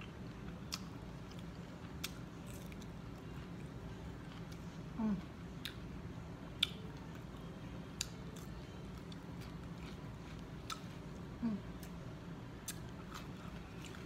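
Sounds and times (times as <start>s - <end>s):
steady low hum: 0.0s - 14.0s
person chewing crisp cucumber: 0.1s - 4.8s, 6.6s - 12.0s, 12.6s - 14.0s
person humming mm: 5.0s - 5.2s, 11.4s - 11.8s.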